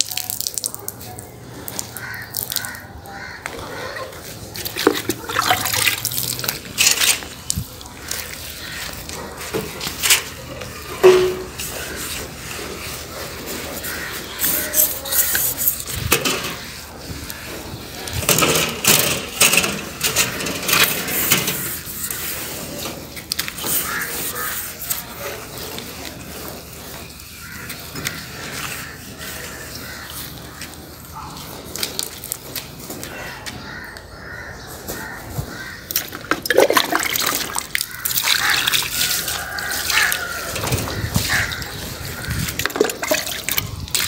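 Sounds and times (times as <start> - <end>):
wet cloth scrubbing glass: 3.5 - 18.1, 35.9 - 44.0.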